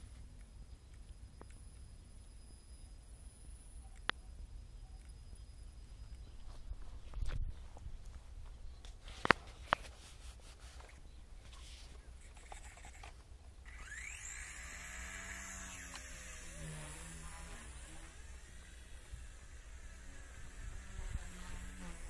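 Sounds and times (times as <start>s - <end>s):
sharp clicks: 0.1s - 2.0s
rotor hum: 12.2s - 22.0s
toy helicopter motor whine: 12.3s - 22.0s.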